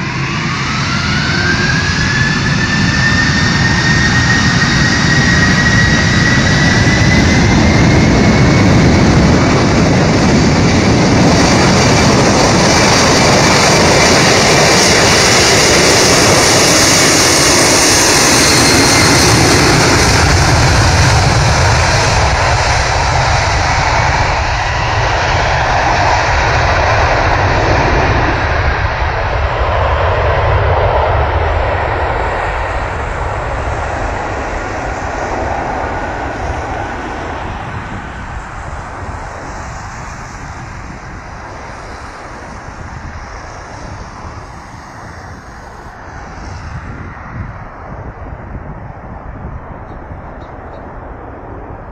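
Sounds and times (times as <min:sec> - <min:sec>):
jet engines at take-off thrust: 0:00.0 - 0:51.9.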